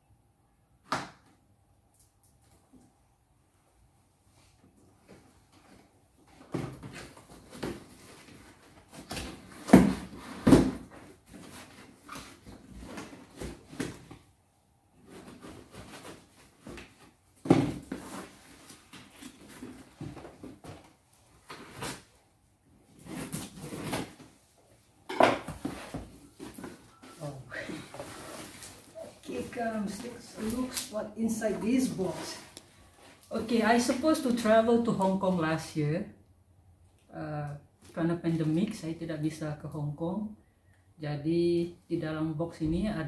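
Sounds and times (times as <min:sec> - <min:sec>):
cardboard knocking and rustling: 0:15.0 - 0:21.0
tape tearing: 0:21.5 - 0:22.2.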